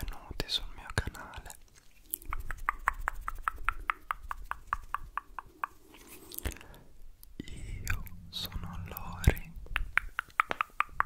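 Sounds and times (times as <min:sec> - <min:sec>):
rapid clicks close to microphone: 0:02.2 - 0:05.8, 0:08.9 - 0:11.0.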